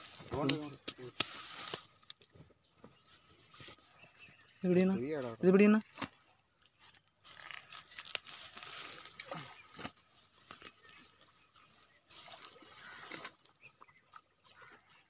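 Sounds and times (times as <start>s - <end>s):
tall grass rustling and crackling: 0.0s - 2.4s, 3.0s - 13.6s
water splashing and sloshing: 5.1s - 15.0s.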